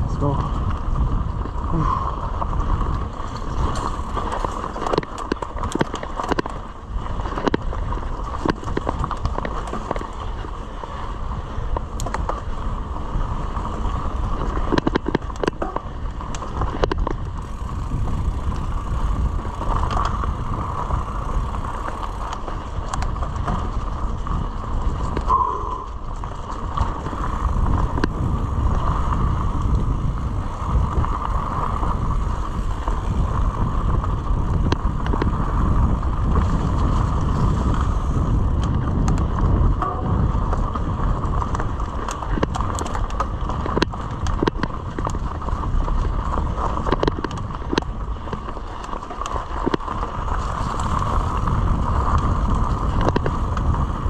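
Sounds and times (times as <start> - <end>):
bike rattling over bumps: 0.0 - 54.0
bike tyre and drivetrain noise: 0.0 - 54.0
wind rumble on microphone: 0.0 - 54.0.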